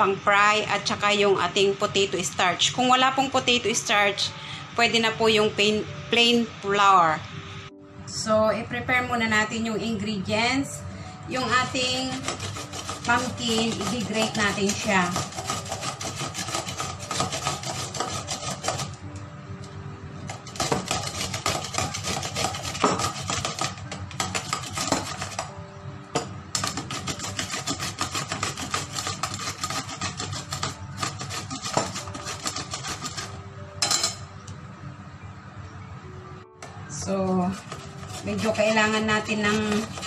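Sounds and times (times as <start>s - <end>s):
pumpkin grating on metal grater: 11.3s - 19.0s, 20.4s - 25.5s, 26.6s - 33.4s, 37.5s - 40.0s.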